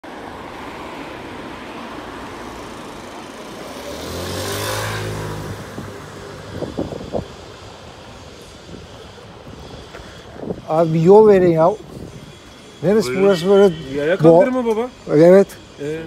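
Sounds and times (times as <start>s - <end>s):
street traffic: 0.0s - 16.0s
car driving past: 0.4s - 7.6s.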